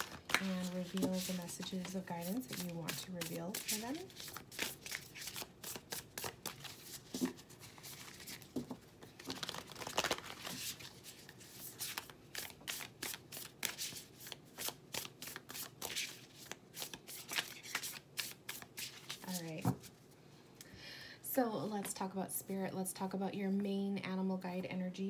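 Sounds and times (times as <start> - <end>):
cards being shuffled: 0.0 - 19.9.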